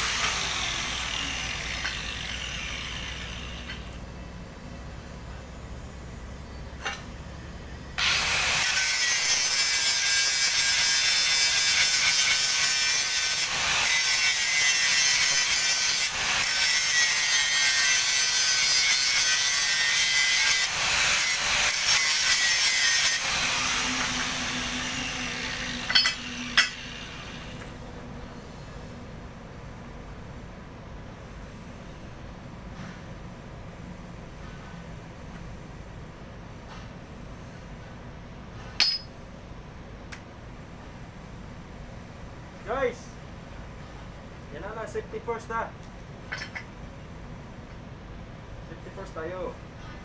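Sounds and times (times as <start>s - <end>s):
angle grinder grinding steel: 0.0s - 3.8s, 8.0s - 27.5s.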